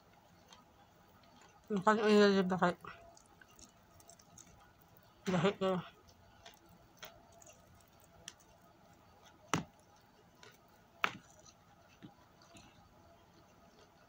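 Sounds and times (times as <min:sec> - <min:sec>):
chicken pulled apart and chewed: 0:03.0 - 0:05.1, 0:06.0 - 0:14.0.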